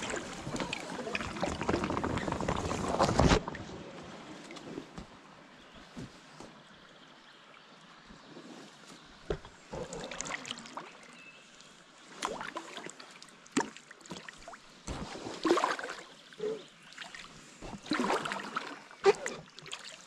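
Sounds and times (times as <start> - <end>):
paddle splashing in water: 0.0 - 5.0, 12.0 - 20.0.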